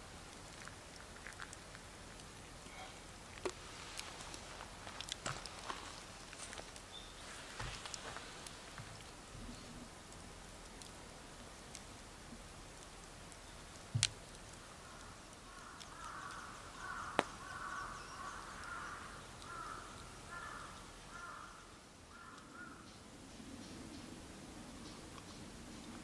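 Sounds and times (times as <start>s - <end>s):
crow cawing: 14.8s - 22.9s.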